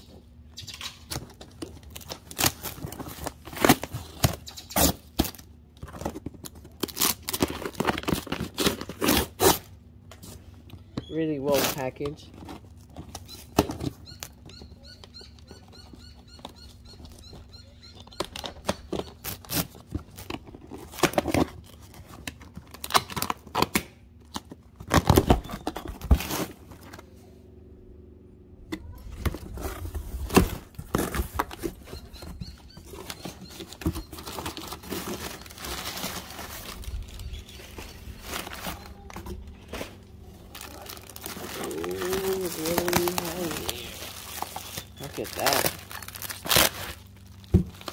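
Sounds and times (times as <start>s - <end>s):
cardboard flaps tearing open: 1.1s - 10.2s, 18.4s - 27.0s, 29.2s - 32.0s, 32.9s - 47.9s
packing paper crinkling: 1.2s - 10.4s, 29.4s - 47.9s
knife slitting packing tape: 2.0s - 5.4s, 6.8s - 9.7s, 18.3s - 21.5s, 41.4s - 47.1s.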